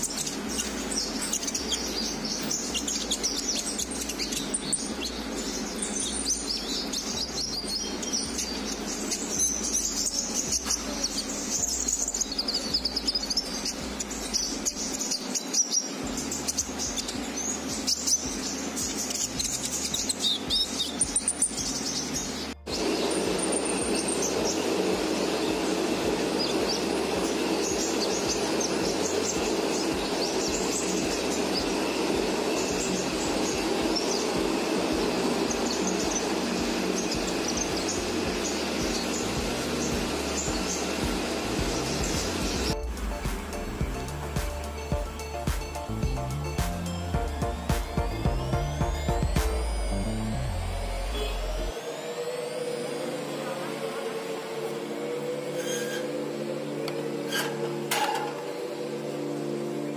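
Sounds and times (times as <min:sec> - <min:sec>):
birds chirping: 0:00.0 - 0:59.9.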